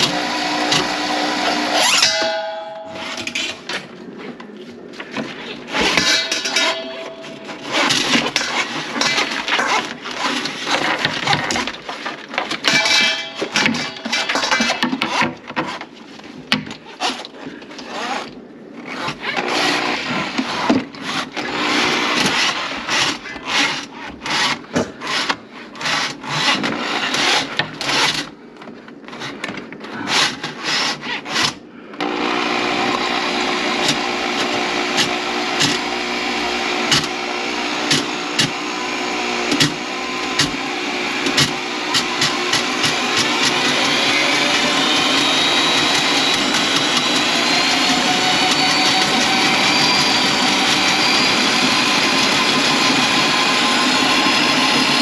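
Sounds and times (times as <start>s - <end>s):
scraping and rubbing: 0.0s - 28.3s
electric motor running: 32.0s - 55.0s.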